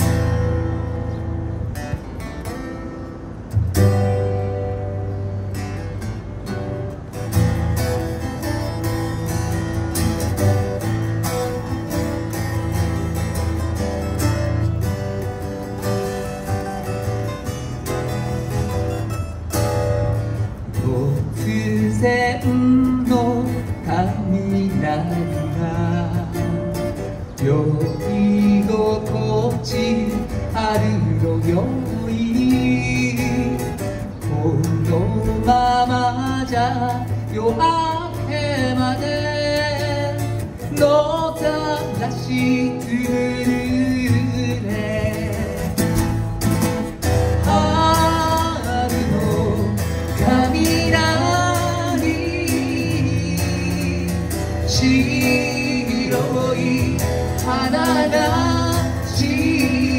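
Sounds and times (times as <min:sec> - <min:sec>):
acoustic guitars: 0:00.0 - 0:59.9
man singing: 0:20.6 - 0:46.4, 0:47.0 - 0:59.9.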